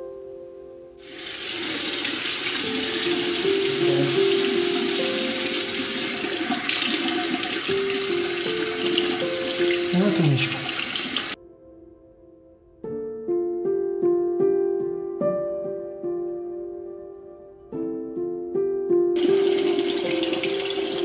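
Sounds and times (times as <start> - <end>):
faucet water running into sink: 1.0 - 11.4, 19.2 - 21.0.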